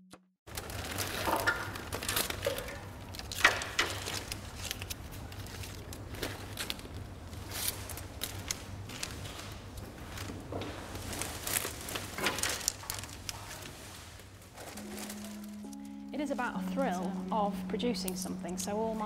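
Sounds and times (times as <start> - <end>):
dry willow rods rustling: 3.9 - 19.0
low steady hum: 14.6 - 19.0.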